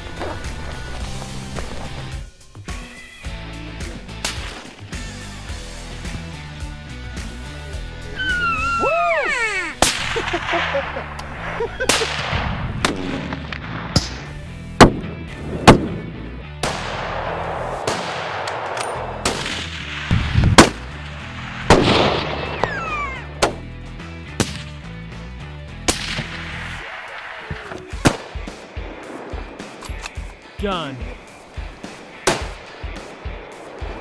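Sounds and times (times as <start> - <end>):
background music: 0.0 - 34.0
rifle shots with echo: 11.9 - 15.1, 16.6 - 22.8, 25.9 - 30.3, 31.9 - 34.0.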